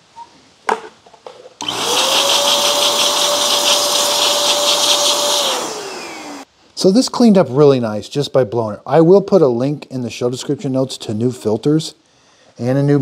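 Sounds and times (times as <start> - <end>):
electric blower motor whine: 1.6 - 6.5.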